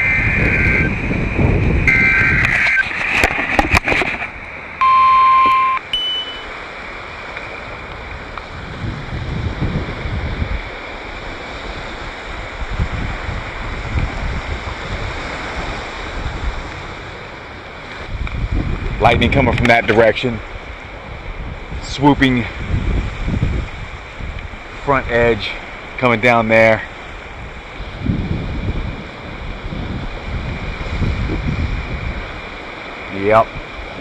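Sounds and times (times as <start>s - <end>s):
surf: 0.0s - 34.0s
wind noise: 0.0s - 34.0s
loud alert tone: 1.9s - 2.8s, 4.8s - 6.5s.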